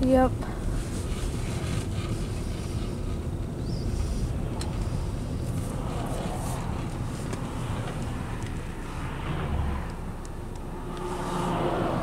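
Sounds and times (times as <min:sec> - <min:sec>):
car road and engine rumble: 0:00.0 - 0:12.0.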